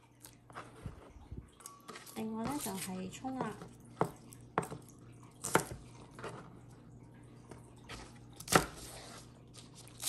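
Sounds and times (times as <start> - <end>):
knife chopping on plastic board: 1.9 - 4.8, 5.4 - 6.4, 8.4 - 8.9.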